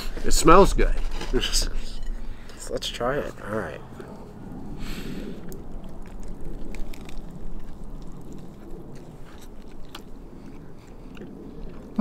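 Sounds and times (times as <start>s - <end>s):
low background rumble: 0.0s - 12.0s
people chewing food: 3.3s - 12.0s.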